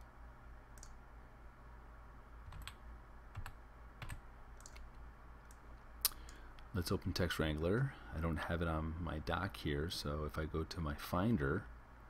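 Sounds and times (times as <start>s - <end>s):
low steady hum: 0.0s - 12.0s
faint keyboard keystrokes: 3.4s - 5.6s.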